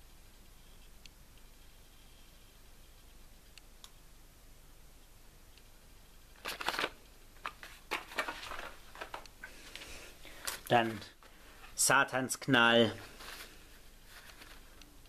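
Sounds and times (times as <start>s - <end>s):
fireworks rustling in plastic bucket: 6.4s - 11.8s, 13.0s - 14.8s.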